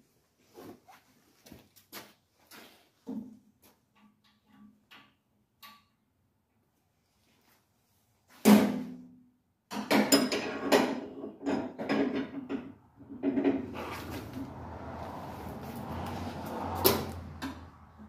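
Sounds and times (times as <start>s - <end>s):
knocks and rattles: 9.7s - 14.6s.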